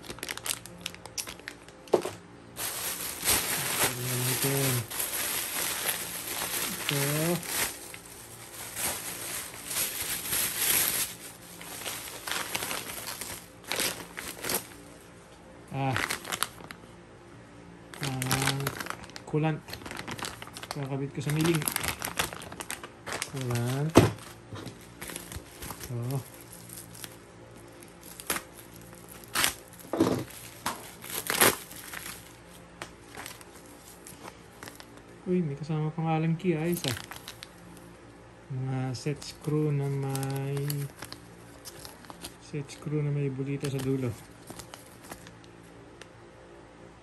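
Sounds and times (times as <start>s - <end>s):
plastic bag handled: 0.0s - 15.1s, 15.7s - 16.8s, 17.9s - 35.0s, 36.4s - 37.7s, 38.9s - 45.4s
plastic packaging crinkling: 0.0s - 16.8s, 17.9s - 35.2s, 36.2s - 37.9s, 38.6s - 45.6s.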